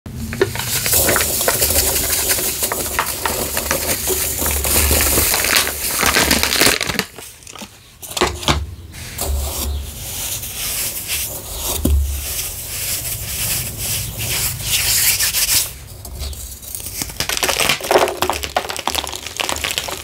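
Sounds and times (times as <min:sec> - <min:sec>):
hands crumbling chalk blocks: 0:00.2 - 0:08.5, 0:10.7 - 0:20.0
foil packet crinkling: 0:00.3 - 0:08.3, 0:16.4 - 0:20.0.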